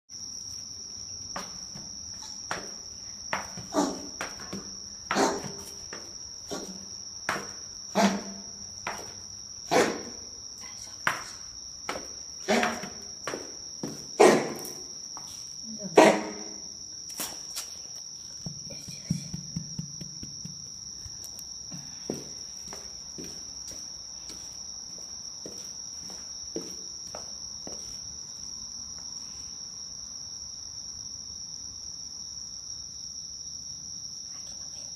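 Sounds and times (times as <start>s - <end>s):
insects trilling: 0.1s - 34.9s
footsteps coming down stairs: 0.5s - 10.2s, 11.0s - 15.4s, 17.2s - 28.1s
light scuffs: 17.1s - 28.4s.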